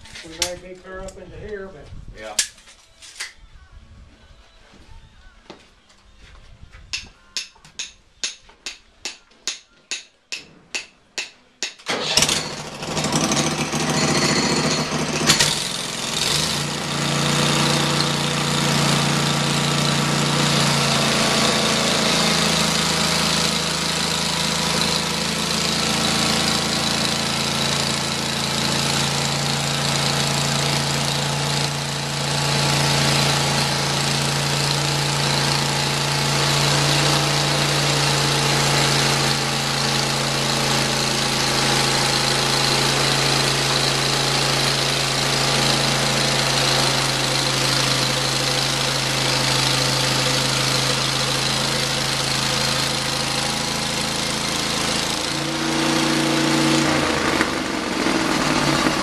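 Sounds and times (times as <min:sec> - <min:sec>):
sawmill engine humming: 0:11.9 - 0:59.0.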